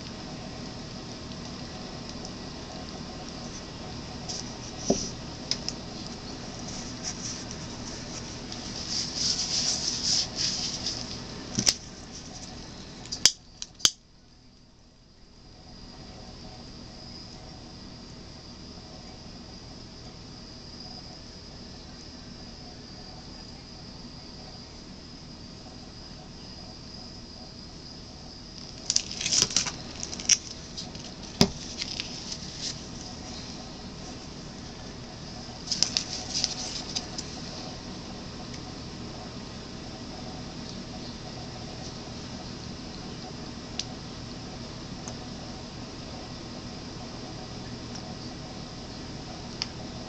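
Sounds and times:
faint high-pitched whine: 0.0s - 50.0s
plastic bottles rustling: 4.3s - 12.5s, 28.6s - 33.2s.

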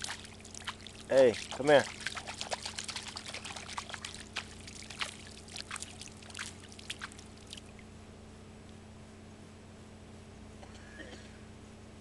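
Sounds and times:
hand splashing pond water: 0.0s - 7.8s.

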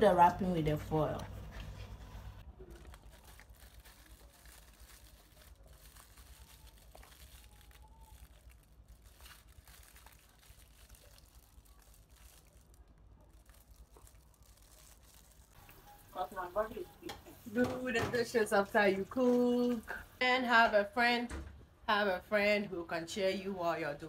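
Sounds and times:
aluminium foil crinkling: 1.1s - 20.2s.

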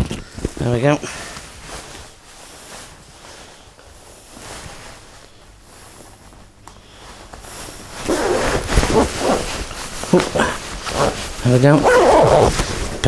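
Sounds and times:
clothing rustling on microphone: 0.0s - 13.0s
jacket zip being done up: 7.6s - 13.0s
microphone handling bumps: 7.6s - 13.0s.

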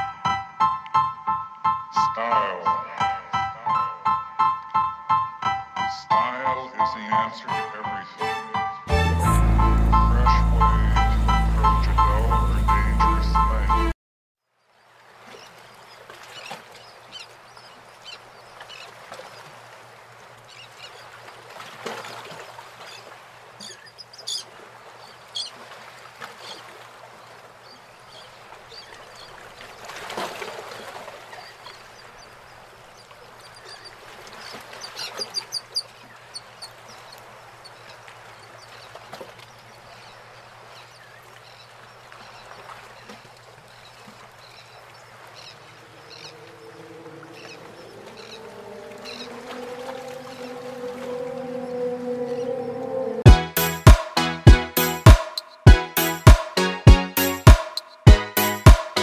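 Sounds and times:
birds chirping: 7.4s - 14.0s, 14.6s - 21.3s, 22.0s - 53.9s, 54.8s - 59.0s
vehicle passing: 45.7s - 53.2s.

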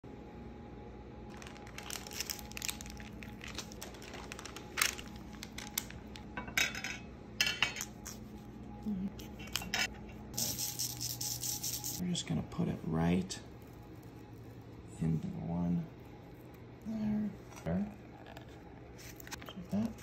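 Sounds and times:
parchment paper rustling: 1.3s - 6.2s.

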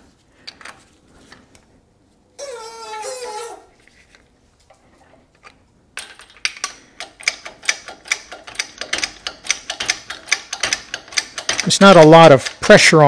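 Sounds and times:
metallic ratcheting clicks: 6.0s - 13.0s.

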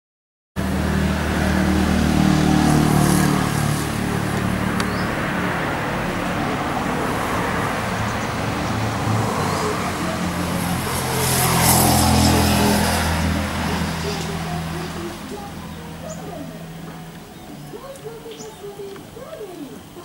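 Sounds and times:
engine low hum: 0.6s - 20.0s
road traffic noise: 0.6s - 20.0s.

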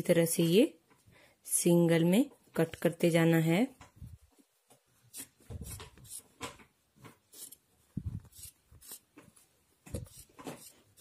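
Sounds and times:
scissors snipping fabric: 7.3s - 7.6s.

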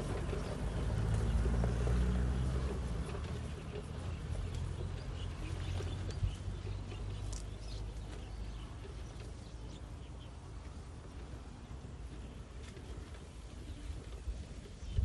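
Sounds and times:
vehicle driving through grass: 0.0s - 9.8s
birds chirping: 0.0s - 15.0s.

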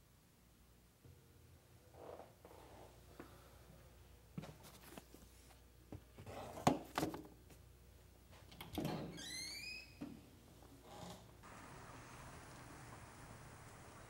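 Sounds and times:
door hinge squeak: 8.9s - 10.0s.

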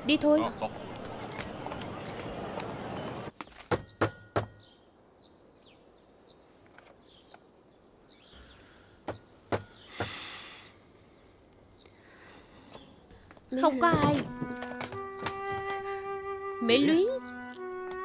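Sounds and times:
birds chirping: 0.1s - 18.0s
knocking on wooden door: 13.8s - 15.7s.

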